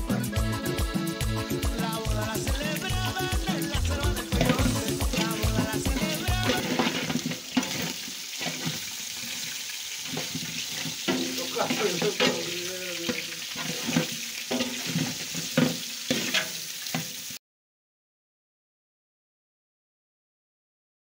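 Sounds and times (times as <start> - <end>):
meat sizzling in a pot: 1.5 - 17.4
spoon scraping a metal pot: 3.6 - 17.2.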